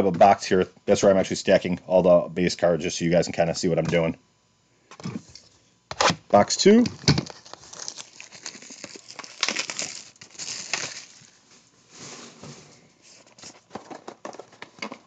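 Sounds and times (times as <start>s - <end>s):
cardboard and wrapping tearing: 7.1s - 12.5s.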